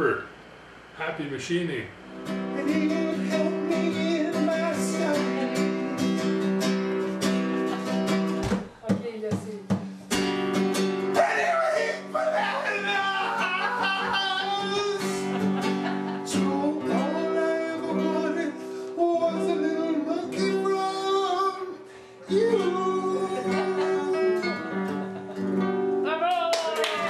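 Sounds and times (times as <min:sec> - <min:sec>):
strummed guitar chords: 0:01.9 - 0:09.0, 0:09.6 - 0:26.1
person singing: 0:02.6 - 0:06.1, 0:11.2 - 0:24.9.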